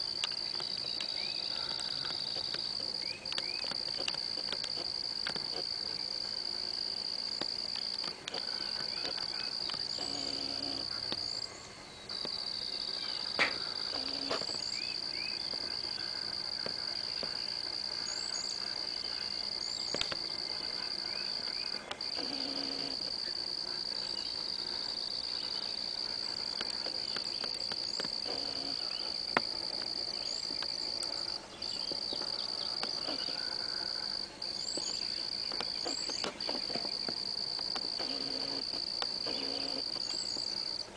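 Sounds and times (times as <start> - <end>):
insects droning: 0.0 - 40.9
sharp clicks: 2.0 - 5.7, 19.9 - 20.2.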